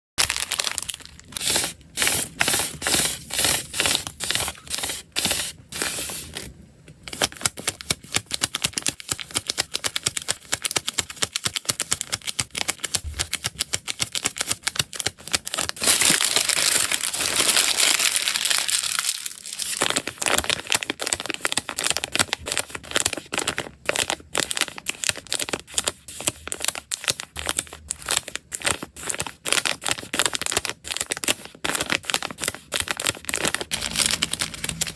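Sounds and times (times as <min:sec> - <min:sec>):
plastic packaging crinkling: 0:00.2 - 0:06.5, 0:14.1 - 0:25.6, 0:26.6 - 0:34.9.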